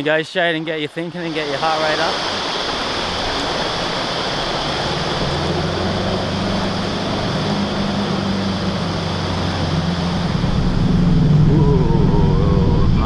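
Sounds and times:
river water rushing: 1.1s - 13.0s
bow wave splashing: 1.2s - 13.0s
vehicle engine running: 4.5s - 13.0s.

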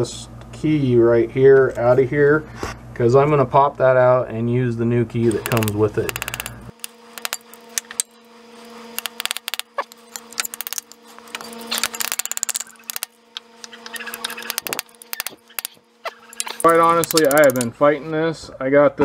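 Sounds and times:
steady low hum: 0.0s - 18.7s
hand tools clicking on metal: 5.3s - 8.1s, 9.0s - 17.8s.

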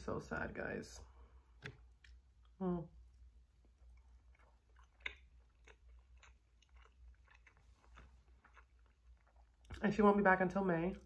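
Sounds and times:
faint chewing: 1.6s - 9.9s.

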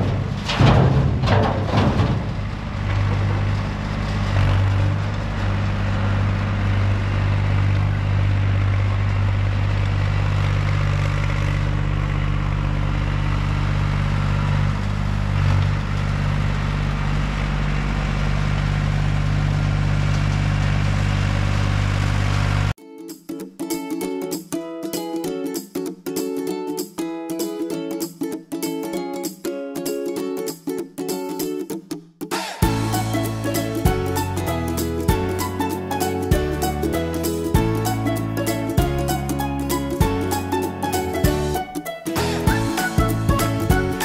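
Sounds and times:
fill clattering into steel dump bed: 0.0s - 7.2s
heavy equipment engines running: 0.0s - 22.8s, 32.6s - 44.0s.

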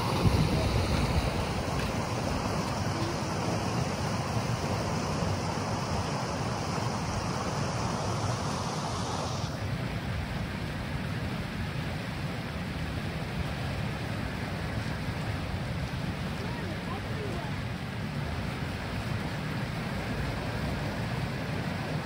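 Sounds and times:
wind on microphone: 0.0s - 9.6s
water flowing in channels: 0.0s - 22.0s.

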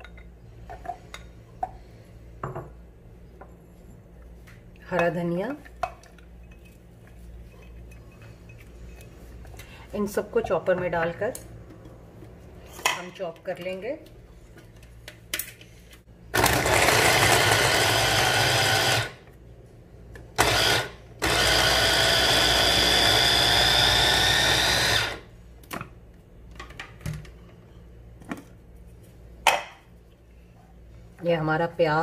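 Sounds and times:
electric food chopper whining: 16.3s - 19.2s, 20.4s - 25.3s.

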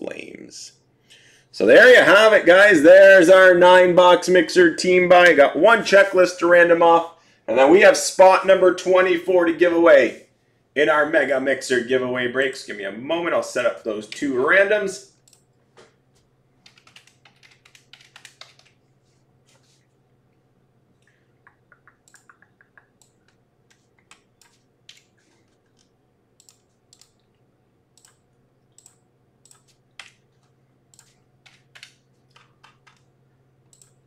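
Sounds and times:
low steady hum: 0.0s - 34.0s
faint keyboard typing: 15.2s - 20.0s, 20.9s - 34.0s.

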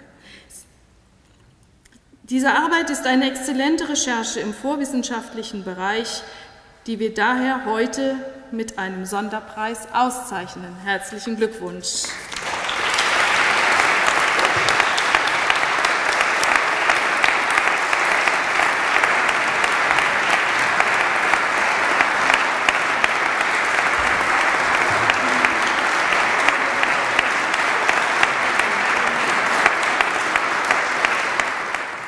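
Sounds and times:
audience applauding: 12.0s - 32.0s.

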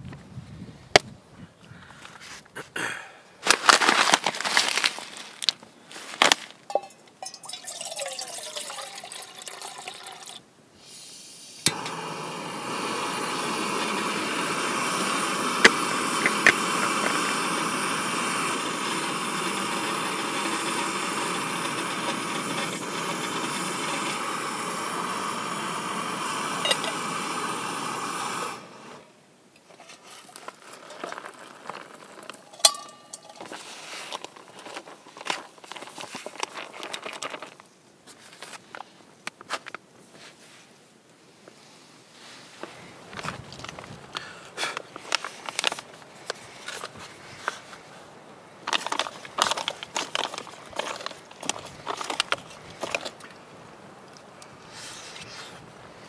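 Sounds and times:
gas stove burner hissing: 10.8s - 29.1s.

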